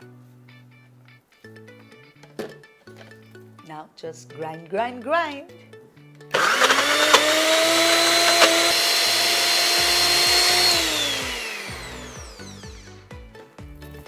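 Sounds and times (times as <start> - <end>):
mixer grinder motor whine: 6.3 - 13.0.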